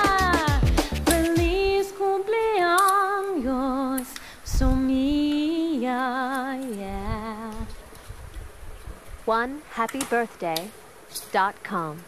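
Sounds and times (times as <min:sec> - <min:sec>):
woman singing with vibrato: 0:00.0 - 0:07.8.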